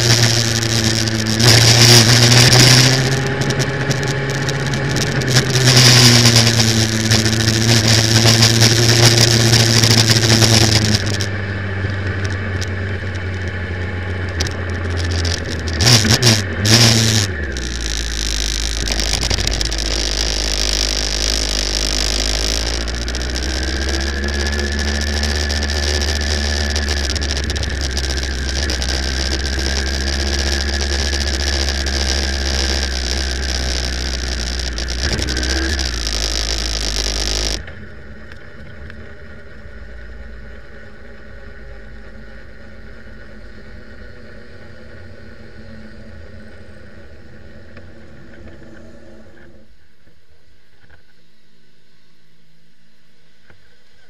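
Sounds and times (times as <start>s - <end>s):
motorcycle engine: 0.0s - 49.7s
motorcycle engines idling: 0.0s - 49.8s.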